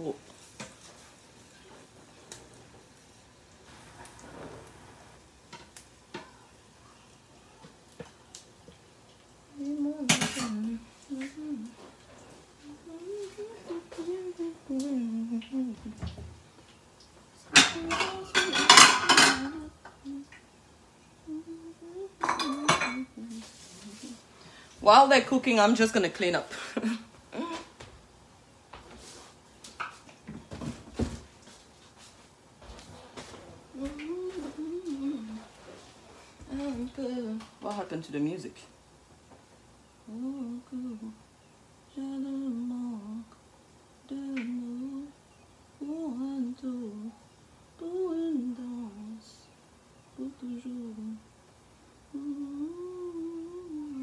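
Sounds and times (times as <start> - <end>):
woman humming a tune: 9.5 - 16.2, 17.5 - 18.6, 19.2 - 20.4, 21.2 - 24.3, 27.3 - 27.8, 33.7 - 35.5, 36.5 - 37.6, 40.0 - 41.2, 41.9 - 43.4, 44.0 - 45.2, 45.8 - 47.2, 47.8 - 51.3, 52.1 - 54.0
dishes and cutlery clattering: 17.5 - 19.6, 22.2 - 23.1.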